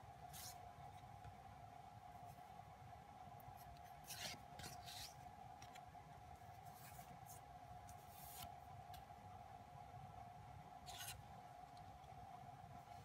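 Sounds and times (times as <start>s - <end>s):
faint steady hum: 0.0s - 13.0s
cards brushing strokes: 0.2s - 0.6s, 3.7s - 5.2s, 6.6s - 8.6s
cards rustling and sliding: 0.3s - 0.6s, 3.6s - 5.9s, 6.5s - 8.6s, 10.8s - 11.2s.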